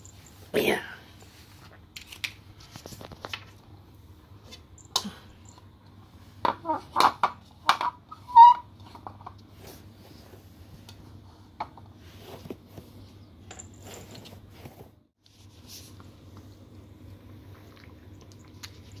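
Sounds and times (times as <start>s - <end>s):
cat eating from plastic bowl: 15.9s - 19.0s.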